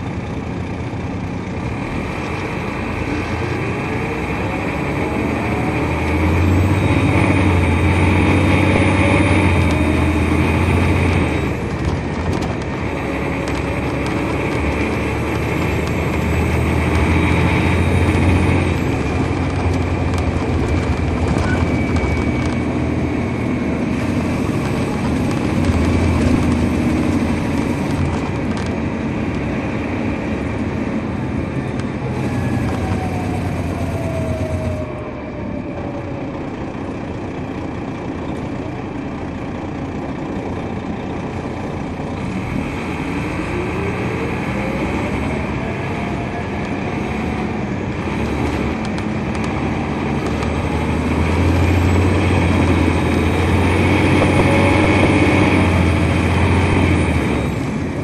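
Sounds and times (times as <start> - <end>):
bus engine: 0.0 - 58.0
transmission whine rising in pitch: 14.9 - 27.5.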